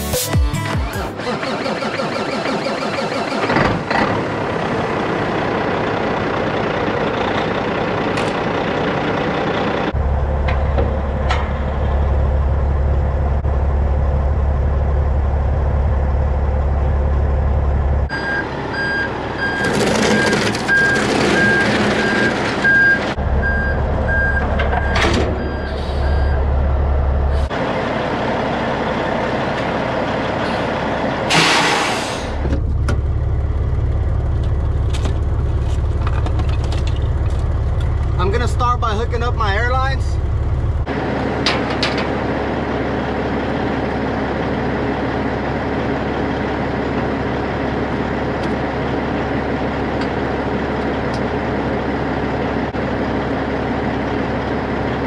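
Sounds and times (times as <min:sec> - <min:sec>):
diesel engine idling: 0:03.4 - 0:55.0
backup alarm beeping: 0:18.1 - 0:26.5.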